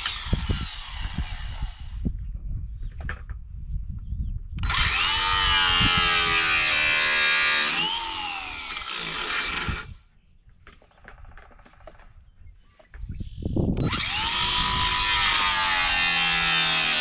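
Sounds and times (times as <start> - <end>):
cordless drill whining squeal: 0.0 - 1.9, 4.6 - 10.0, 13.8 - 16.9.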